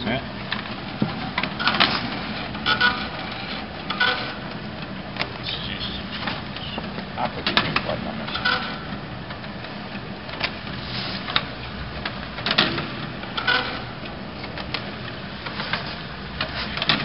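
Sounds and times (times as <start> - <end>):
machine clicks and knocks: 0.5 - 5.4, 6.2 - 17.0
machine humming: 1.0 - 10.8.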